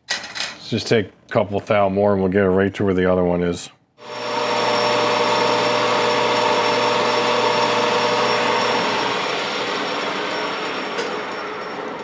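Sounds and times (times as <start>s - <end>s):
metal lathe whine: 4.0s - 12.0s.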